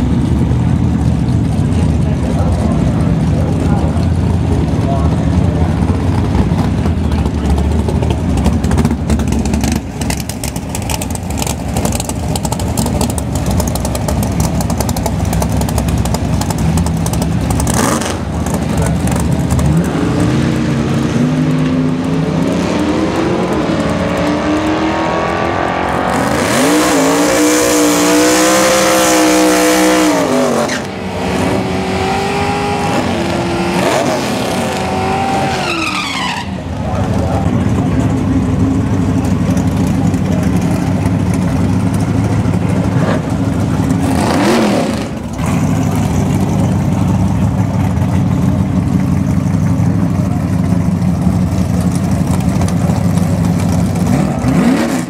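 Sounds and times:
engines rumbling at idle: 0.0s - 26.8s, 27.7s - 55.0s
engine revving: 15.3s - 38.0s, 42.0s - 47.0s, 53.9s - 55.0s
tyre squeal: 30.5s - 30.9s, 35.2s - 36.7s.

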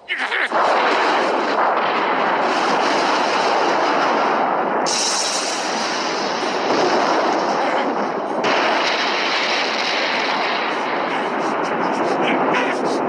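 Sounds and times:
crackling energy roar: 0.1s - 13.0s
high hiss: 4.9s - 6.1s.

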